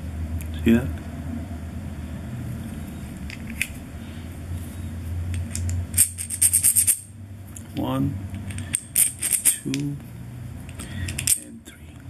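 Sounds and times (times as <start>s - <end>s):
steady low hum: 0.0s - 12.0s
metallic clicks of lug nut: 10.7s - 11.5s.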